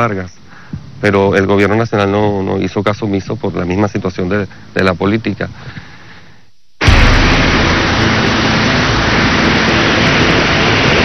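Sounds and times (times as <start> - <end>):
torrential rain pouring: 6.8 - 11.0.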